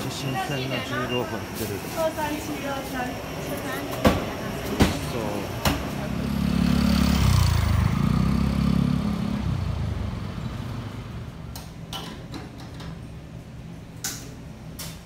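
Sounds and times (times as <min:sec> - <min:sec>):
motor scooter passing by: 0:06.0 - 0:11.3.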